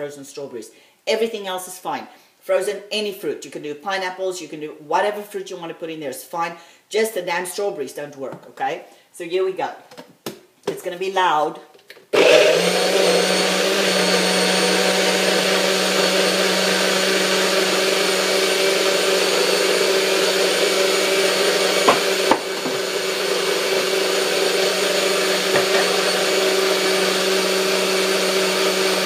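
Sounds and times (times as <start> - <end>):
blender motor running: 12.2 - 29.0.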